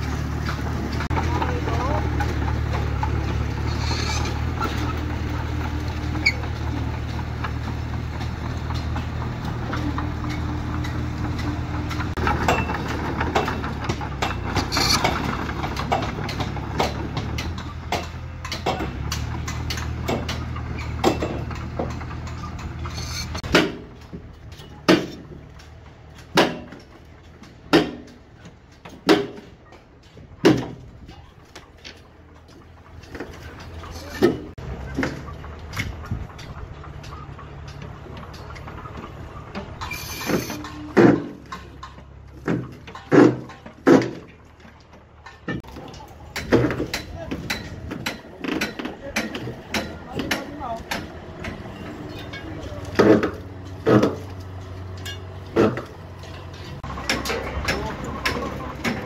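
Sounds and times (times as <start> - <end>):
bulldozer diesel engine running: 0.0 - 59.0
wooden pole ramming soil: 7.2 - 24.2, 24.8 - 25.4, 26.2 - 26.9, 27.7 - 28.2, 39.8 - 41.5, 42.4 - 44.4, 52.8 - 54.5, 55.1 - 59.0.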